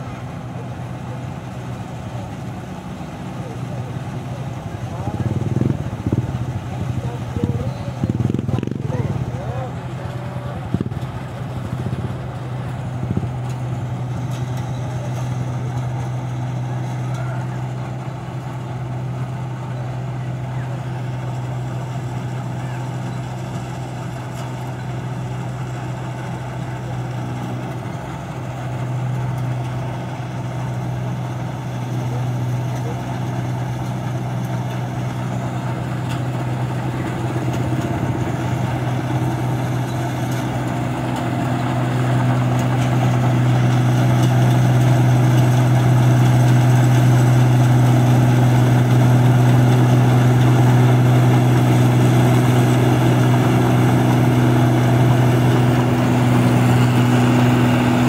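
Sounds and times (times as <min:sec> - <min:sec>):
combine harvester running: 0:00.0 - 0:58.0.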